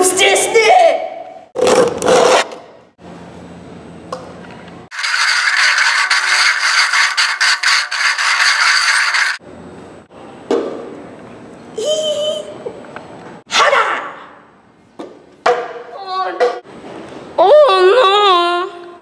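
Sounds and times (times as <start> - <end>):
plastic cups scraping on concrete: 4.9 - 9.4.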